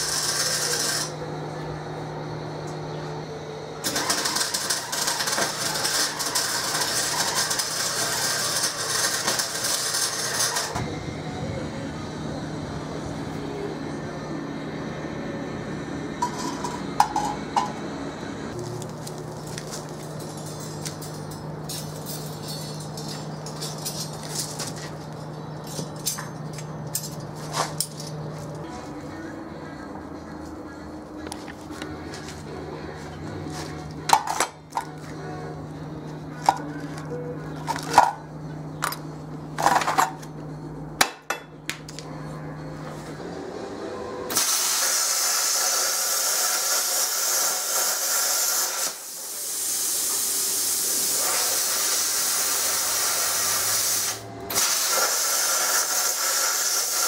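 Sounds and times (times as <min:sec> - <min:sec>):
steady low hum: 0:00.0 - 0:44.3
scrap metal clanking: 0:19.5 - 0:28.4.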